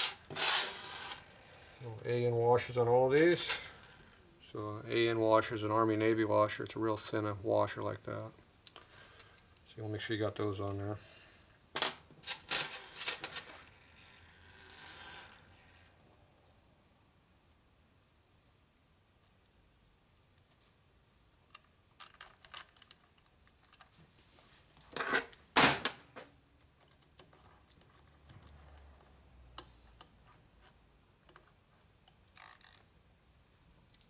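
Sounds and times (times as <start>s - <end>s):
metal bolts and washers clinking: 3.1s - 3.9s, 8.6s - 10.9s, 21.5s - 23.9s.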